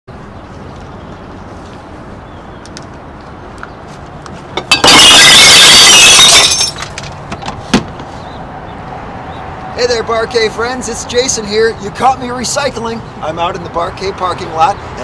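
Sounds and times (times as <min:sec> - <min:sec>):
glass bottles crashing: 0:04.6 - 0:06.9
glass clinks: 0:06.2 - 0:06.8.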